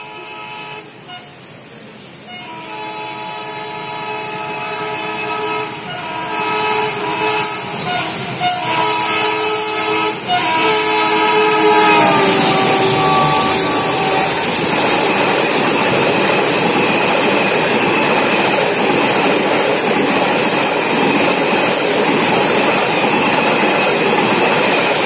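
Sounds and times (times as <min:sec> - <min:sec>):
locomotive air horn blasts: 0:00.0 - 0:01.4, 0:02.3 - 0:15.2
moving train rumble: 0:00.0 - 0:25.0.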